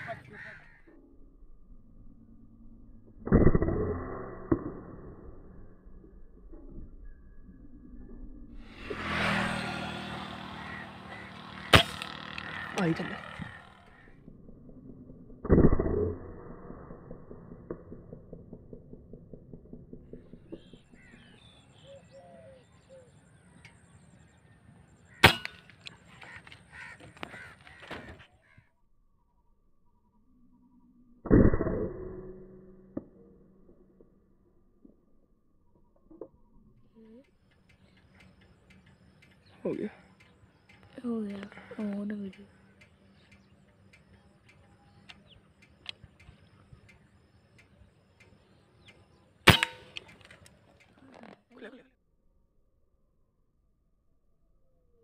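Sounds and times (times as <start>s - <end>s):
birds calling: 0.0s - 1.0s, 8.6s - 14.3s, 19.9s - 28.7s, 35.7s - 51.4s
airgun shot: 11.6s - 12.5s, 25.2s - 25.7s, 49.5s - 50.1s
faint ticks: 37.0s - 49.1s, 50.0s - 51.4s.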